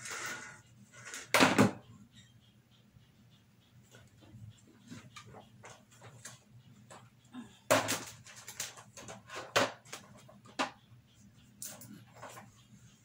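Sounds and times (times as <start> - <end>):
sharp clicks and knocks: 4.0 - 12.6.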